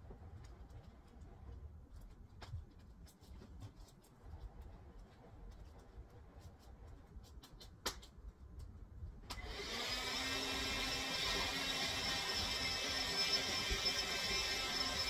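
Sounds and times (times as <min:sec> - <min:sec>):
vacuum cleaner running: 0:09.4 - 0:15.0.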